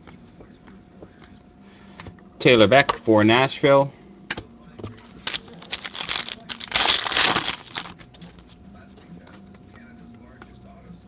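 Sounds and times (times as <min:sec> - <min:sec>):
foil wrapper crinkling and tearing: 0:05.0 - 0:08.1.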